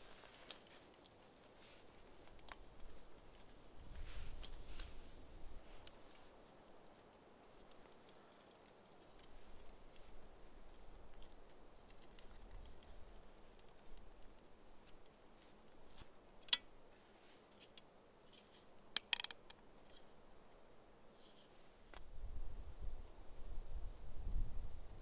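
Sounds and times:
wooden saw clicking and rattling: 19.0 - 19.6.

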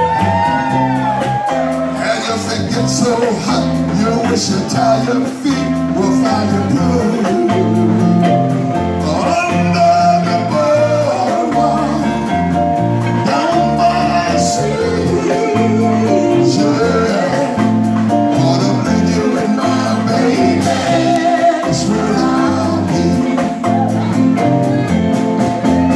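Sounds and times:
electric guitar: 0.0 - 25.9
low bass line: 0.0 - 25.9
steady drum beat: 0.0 - 25.9
man and woman singing duet: 2.0 - 8.4, 9.0 - 12.5, 13.2 - 23.9.

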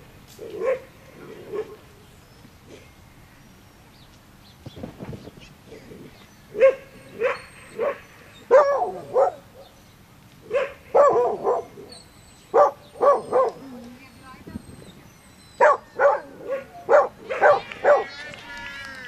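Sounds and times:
dog barking: 0.5 - 0.9, 1.5 - 1.8, 6.6 - 9.4, 10.5 - 11.9, 12.5 - 13.6, 15.6 - 18.1.

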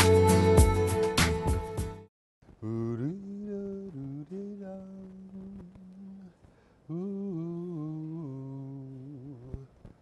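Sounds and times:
man humming: 2.6 - 9.8.

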